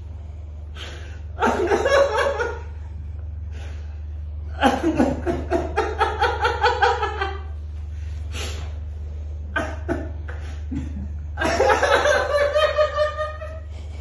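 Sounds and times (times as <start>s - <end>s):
sharp breath: 8.2s - 8.8s
man laughing: 9.5s - 13.7s.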